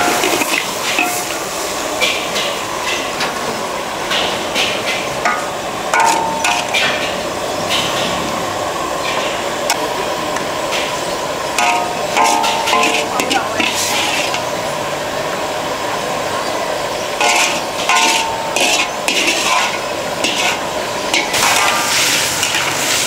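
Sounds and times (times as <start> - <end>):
utensils and crockery clinking: 0.0 - 3.4, 4.0 - 8.3, 10.7 - 14.8, 17.0 - 23.0
market din: 0.0 - 23.0.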